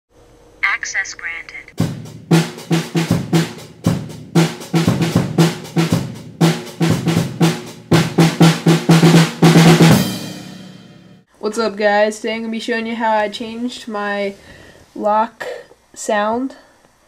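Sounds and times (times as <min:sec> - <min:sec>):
drum kit beat: 0:01.7 - 0:11.2.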